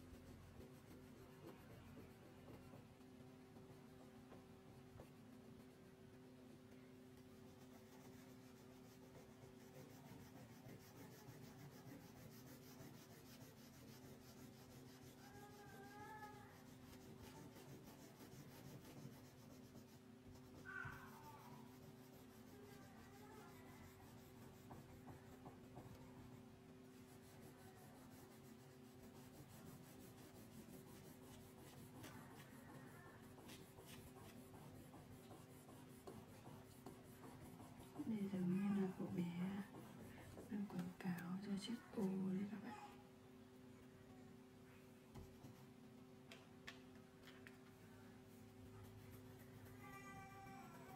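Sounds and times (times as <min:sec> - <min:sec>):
crayon scratching on paper: 0:00.0 - 0:42.6, 0:48.3 - 0:50.9.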